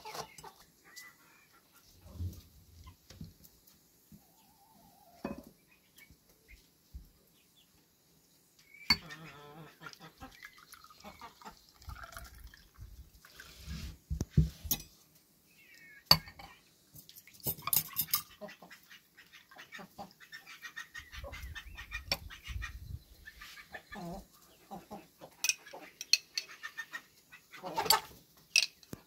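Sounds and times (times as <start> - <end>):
juice pouring and gurgling: 10.2 - 13.8
glass clinking on glass: 16.1 - 16.5.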